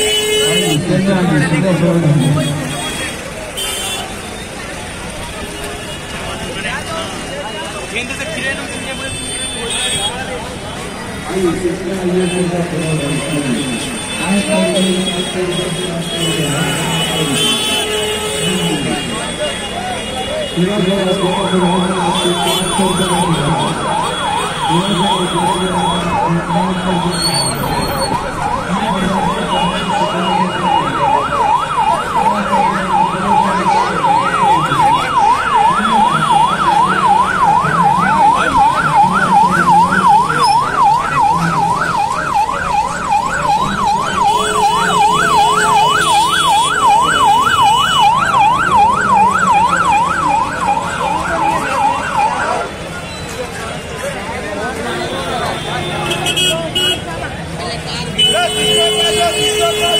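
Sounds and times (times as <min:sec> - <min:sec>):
traffic hum: 0:00.0 - 0:59.9
siren yelping: 0:21.0 - 0:52.8.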